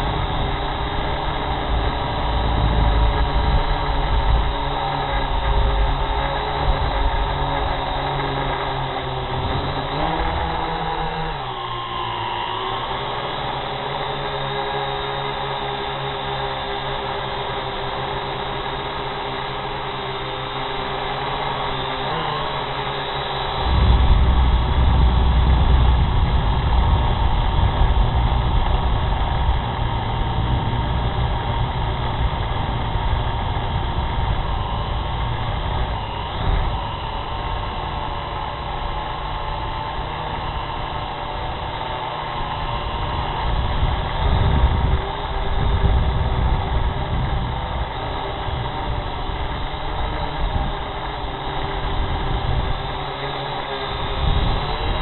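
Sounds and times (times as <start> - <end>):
low rumbling: 0.0 - 13.0, 23.4 - 52.9
drone propellers buzzing: 0.0 - 55.0.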